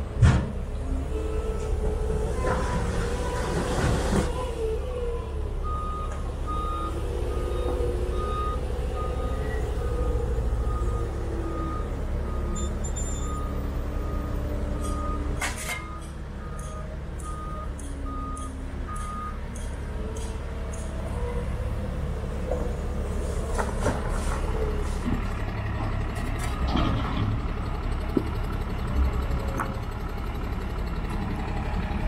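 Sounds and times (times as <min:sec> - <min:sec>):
diesel engine running: 0:00.0 - 0:32.0
sharp clunk: 0:00.2 - 0:00.6
reversing alarm beeping: 0:05.6 - 0:19.7.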